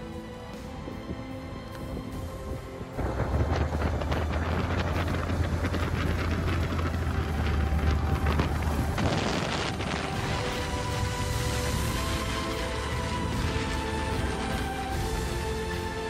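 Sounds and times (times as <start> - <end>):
wind buffeting microphone: 0.5 - 16.0
tyres rolling over gravel: 3.0 - 16.0.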